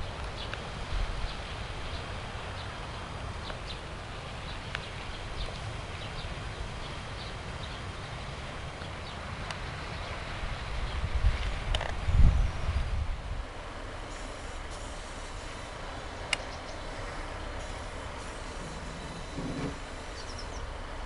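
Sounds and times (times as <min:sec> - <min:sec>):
wind rumble on microphone: 0:00.0 - 0:13.8
high bird chirps: 0:20.0 - 0:20.7.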